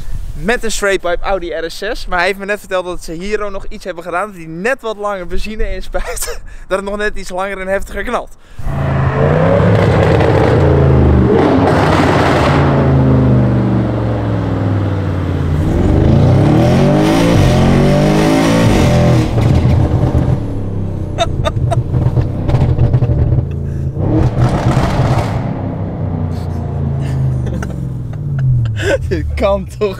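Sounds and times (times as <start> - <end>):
car engine accelerating hard: 8.6 - 29.9
exhaust pops and bangs: 18.8 - 20.5, 21.8 - 23.6, 24.2 - 25.8.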